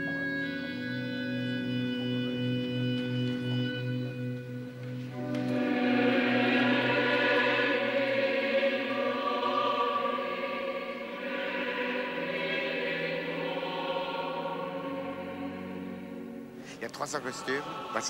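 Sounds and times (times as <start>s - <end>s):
choir singing slow chant: 5.1s - 18.0s.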